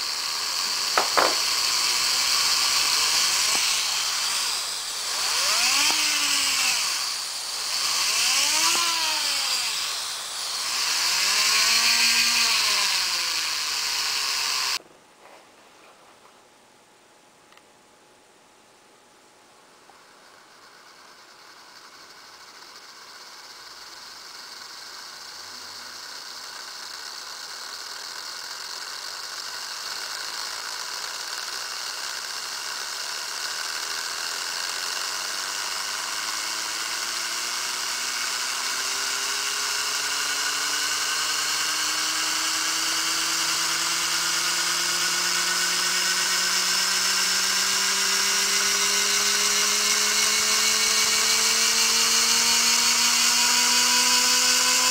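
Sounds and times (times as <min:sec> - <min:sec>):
turbine whine rising in pitch: 0:00.0 - 0:14.8, 0:20.0 - 0:54.9
hiss: 0:20.0 - 0:36.4.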